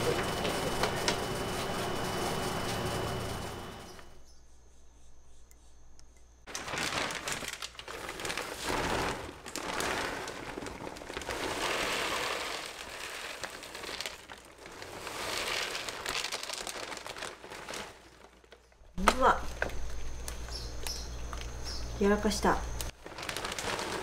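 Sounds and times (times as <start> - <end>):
litter pellets pouring: 6.5 - 18.6, 22.9 - 24.0
plastic bag crinkling: 6.5 - 21.7, 22.7 - 24.0.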